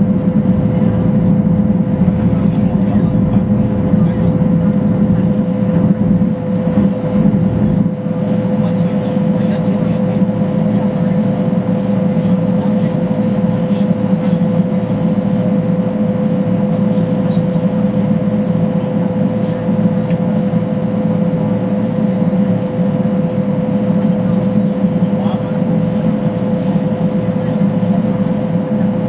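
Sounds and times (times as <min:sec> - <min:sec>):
constant mid-pitched hum: 0:00.0 - 0:29.0
deep engine rumble: 0:00.0 - 0:29.0.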